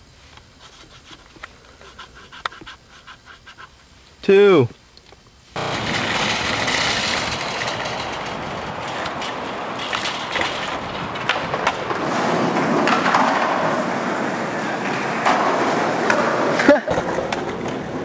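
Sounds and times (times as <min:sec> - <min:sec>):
sharp clicks and rattles: 0:05.0 - 0:11.8
wheels rolling over asphalt: 0:05.0 - 0:18.0.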